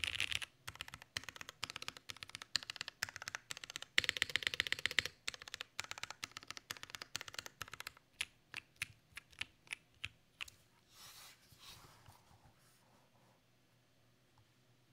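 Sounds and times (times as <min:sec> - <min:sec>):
mechanical keyboard typing: 0:00.0 - 0:10.2.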